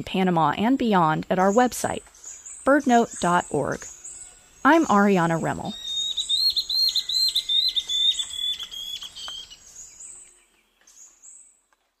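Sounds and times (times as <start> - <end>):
bird whistled song: 5.7 - 11.5.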